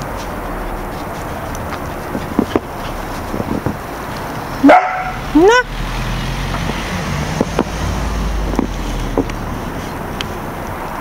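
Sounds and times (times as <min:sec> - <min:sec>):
puppy barking: 0:04.6 - 0:05.7.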